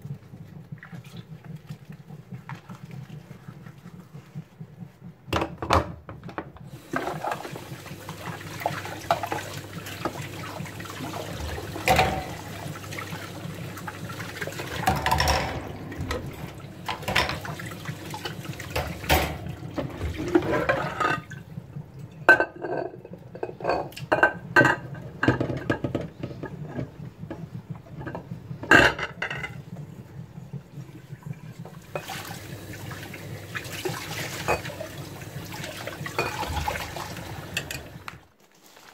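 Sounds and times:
tap water splashing into sink: 6.8s - 20.5s
dishes clinking: 11.8s - 12.5s, 14.8s - 17.6s, 18.8s - 19.5s, 34.4s - 34.8s, 36.2s - 36.6s.

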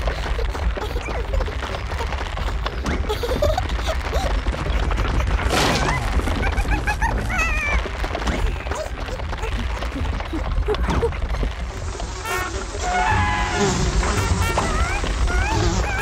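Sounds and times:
short rushing noise: 11.6s - 15.8s.

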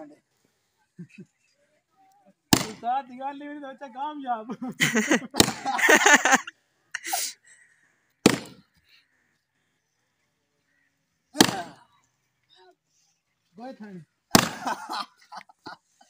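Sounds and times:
tool striking tree stump: 2.5s - 2.8s, 5.4s - 5.8s, 8.2s - 8.6s, 11.4s - 11.8s, 14.3s - 14.7s.

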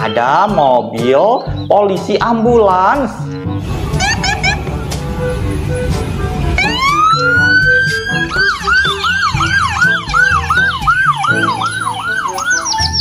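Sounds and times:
ambulance siren wailing and yelping: 3.8s - 13.0s.

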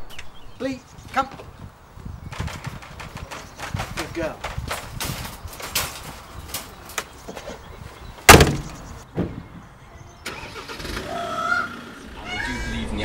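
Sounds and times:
wire crate clicks and knocks: 2.3s - 7.6s, 8.3s - 9.4s
car door slamming: 8.3s - 9.4s.

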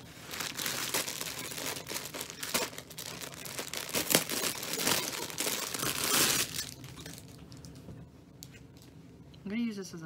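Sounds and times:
plastic packaging crinkling: 0.0s - 7.8s.

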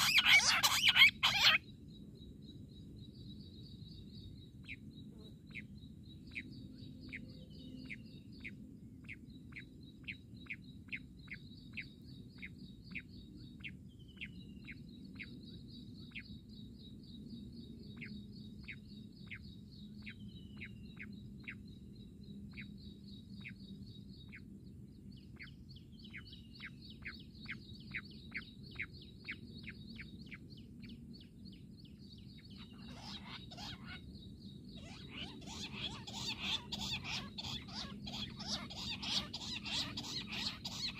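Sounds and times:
quail calling: 0.0s - 1.6s, 32.6s - 34.0s, 34.8s - 40.9s.

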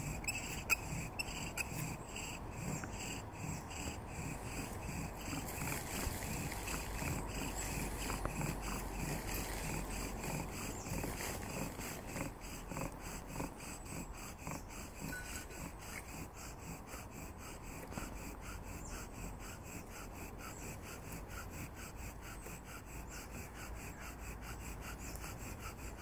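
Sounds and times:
bow drill grinding wood: 0.0s - 13.5s, 14.8s - 16.9s.

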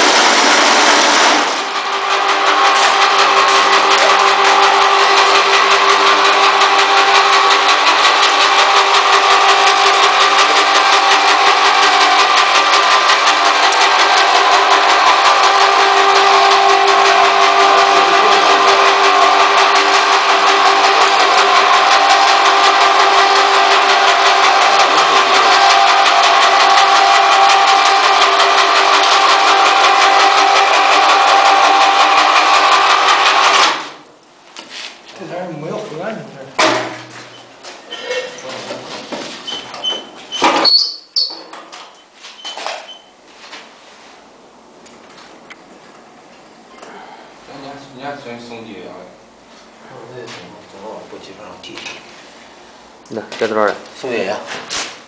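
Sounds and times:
plastering machine motor whine: 0.0s - 34.0s.

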